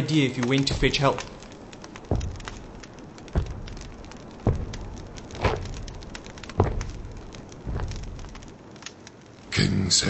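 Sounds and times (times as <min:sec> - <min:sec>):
boot footsteps on stone floor: 0:00.6 - 0:08.6.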